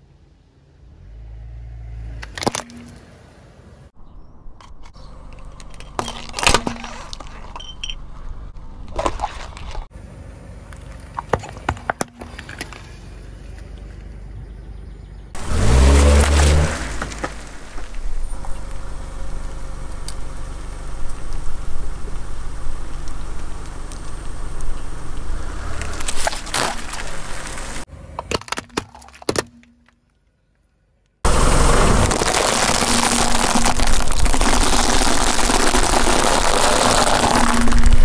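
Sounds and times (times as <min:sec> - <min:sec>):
car low rumble: 0:00.0 - 0:28.3, 0:30.6 - 0:38.0
plastic toys cracking under tyre: 0:02.2 - 0:02.8, 0:04.6 - 0:09.9, 0:25.8 - 0:30.2, 0:31.9 - 0:38.0.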